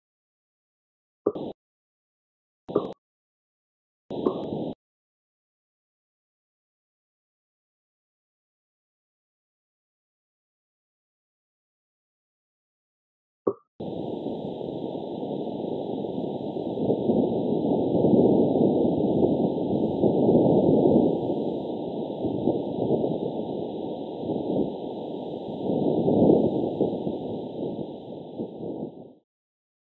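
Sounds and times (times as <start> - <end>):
rushing crackling noise: 4.1 - 4.8, 13.8 - 29.2.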